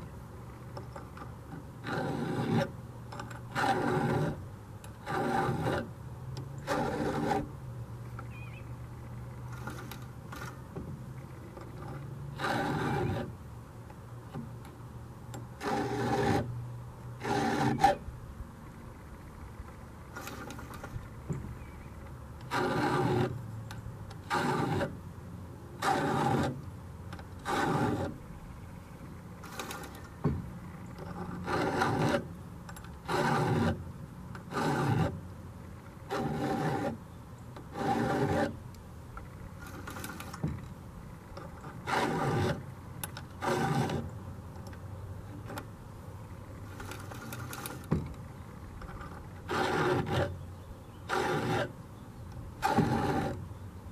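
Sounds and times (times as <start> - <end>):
file rasping on chain: 1.8 - 4.4, 5.0 - 5.9, 6.6 - 7.5, 11.8 - 13.3, 15.6 - 16.5, 17.2 - 18.0, 22.5 - 23.4, 24.2 - 25.0, 25.8 - 26.6, 27.4 - 28.2, 31.0 - 32.3, 33.0 - 33.8, 34.5 - 35.2, 36.1 - 37.0, 37.7 - 38.6, 41.6 - 42.6, 43.4 - 44.1, 48.9 - 50.4, 51.0 - 51.8, 52.6 - 53.4.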